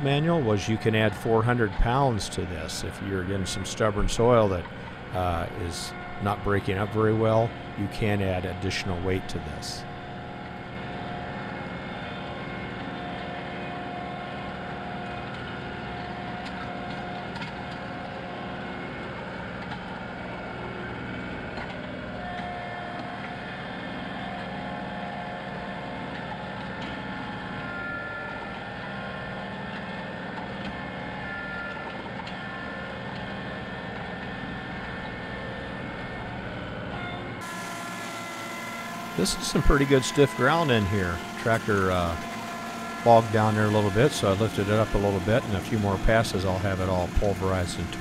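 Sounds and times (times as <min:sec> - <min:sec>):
tractor diesel engine under load: 0:00.0 - 0:10.8, 0:38.8 - 0:48.0
thin high whine: 0:00.0 - 0:12.7, 0:30.7 - 0:48.0.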